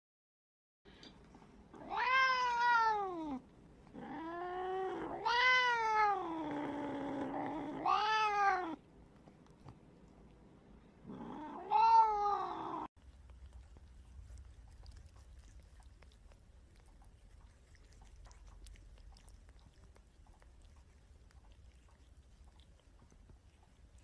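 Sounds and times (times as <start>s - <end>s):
cat meowing: 1.8s - 3.4s, 4.0s - 6.3s, 7.6s - 8.8s, 11.3s - 12.9s.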